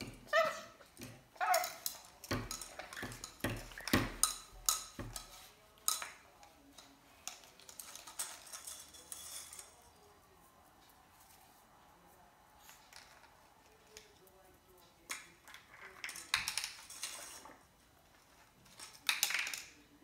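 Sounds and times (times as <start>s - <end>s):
plastic ball toy clacking on tile floor: 19.0s - 19.8s.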